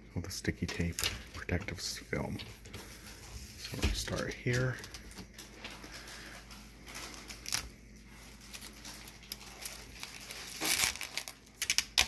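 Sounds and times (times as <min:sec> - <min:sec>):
plastic film peeling and crinkling: 0:02.5 - 0:12.0.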